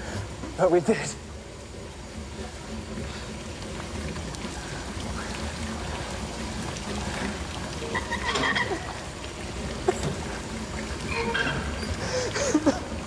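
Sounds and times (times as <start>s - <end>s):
low rumble of flooded room: 0.0s - 13.0s
water trickling: 0.0s - 13.0s
valves creaking: 7.7s - 13.0s.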